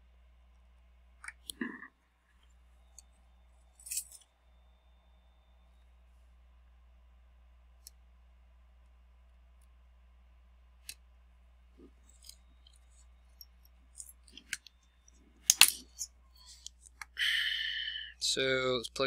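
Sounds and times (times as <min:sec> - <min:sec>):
metal tools clicking and tapping: 0:03.8 - 0:04.2, 0:12.0 - 0:17.1.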